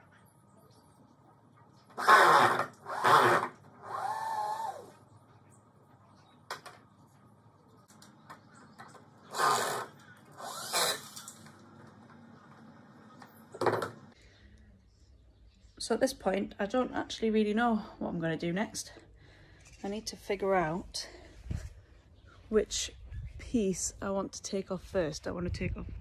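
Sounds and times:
power drill running: 2.0 - 5.0, 9.3 - 11.4.

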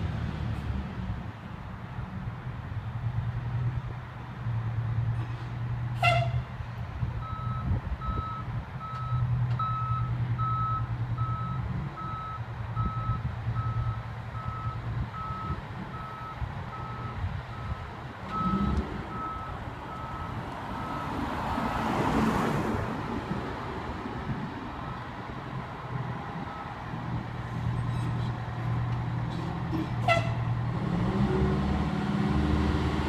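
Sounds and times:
diesel engine drone: 0.0 - 33.0
truck backup alarm beeping: 7.2 - 21.2, 24.7 - 25.1, 26.4 - 26.8
car passing by: 18.3 - 24.1, 30.7 - 33.0.

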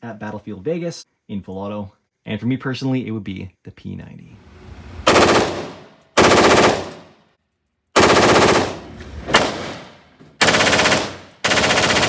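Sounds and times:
automatic gunfire bursts: 5.1 - 7.0, 8.0 - 8.8, 10.4 - 12.0.

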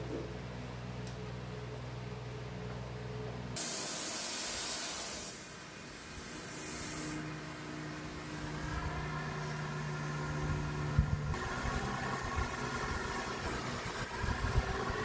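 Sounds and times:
gas torch hissing: 3.6 - 7.4.

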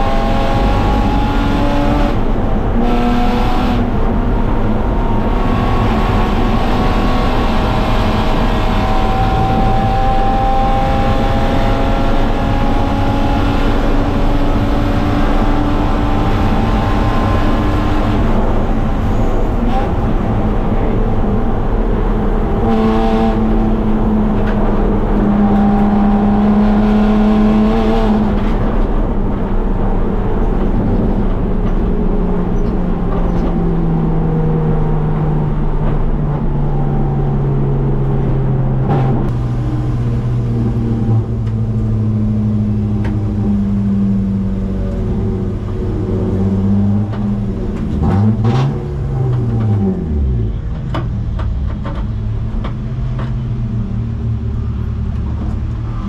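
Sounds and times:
car engine from inside cabin: 0.0 - 29.2.

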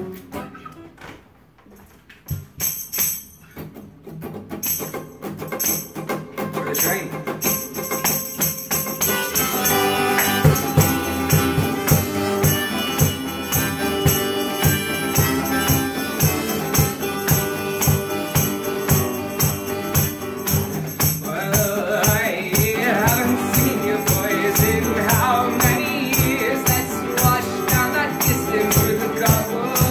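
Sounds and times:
acoustic guitar strumming: 0.0 - 29.9
harmonica holding notes: 8.7 - 21.0, 22.7 - 29.9.

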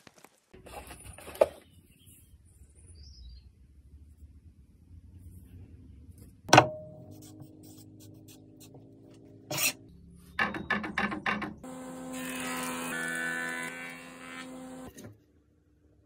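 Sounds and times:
planer-jointer running: 11.6 - 15.0.

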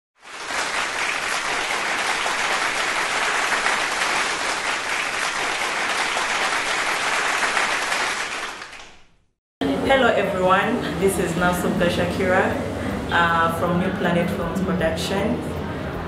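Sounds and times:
audience applauding: 0.2 - 9.2.

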